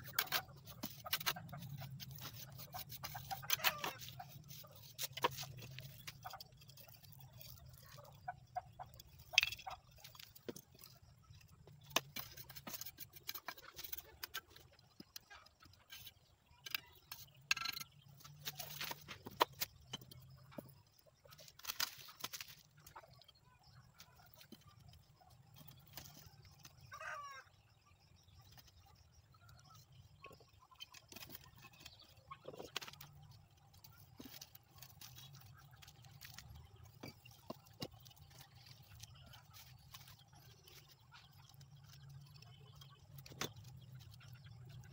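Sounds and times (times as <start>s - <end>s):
trowel scraping mortar in metal basin: 0.0s - 8.2s, 11.8s - 14.5s
clay bricks clicking: 0.0s - 26.9s, 29.8s - 44.9s.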